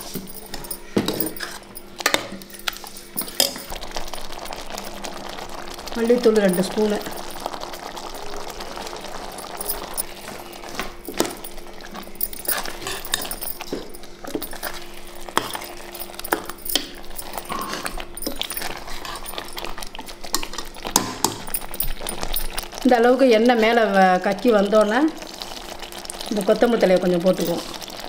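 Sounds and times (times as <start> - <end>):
ladle scraping a metal pot: 12.3 - 19.7.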